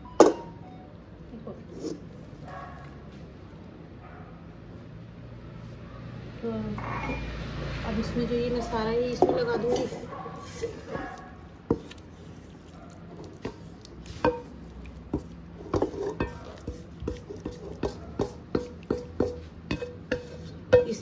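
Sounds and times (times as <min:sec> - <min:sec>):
spoon clinking against pan: 0:15.8 - 0:21.0.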